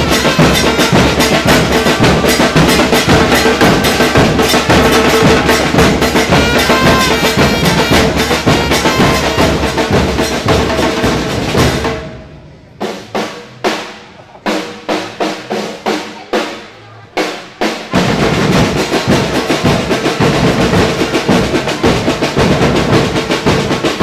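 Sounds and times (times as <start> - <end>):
drum band playing fast beat: 0.0 - 12.2, 12.8 - 24.0.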